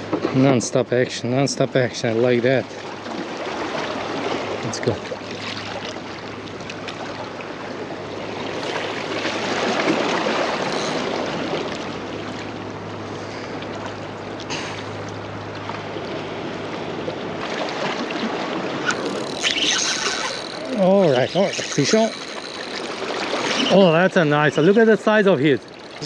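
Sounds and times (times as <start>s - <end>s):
small waves lapping against rocks: 16.9s - 26.0s.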